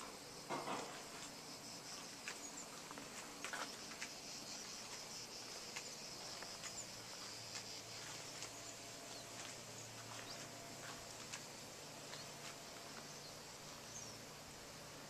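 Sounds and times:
rustle or knock: 0.0s - 1.4s.

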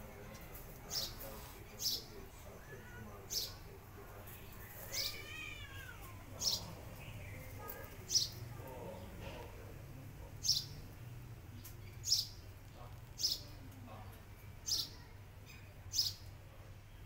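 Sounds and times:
small bird chirping: 6.4s - 8.4s, 10.4s - 10.8s, 11.5s - 12.5s, 14.6s - 16.3s.

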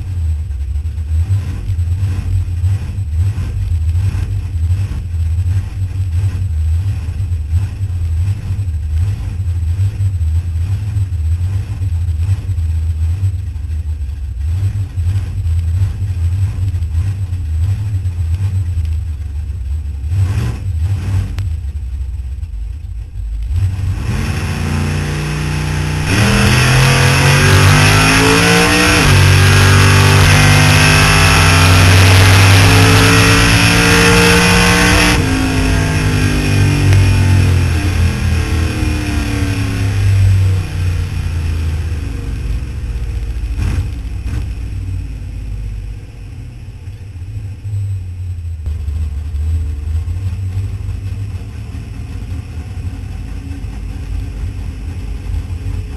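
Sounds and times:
supercharged engine revving: 0.9s - 13.6s, 20.0s - 21.7s, 23.4s - 55.9s.

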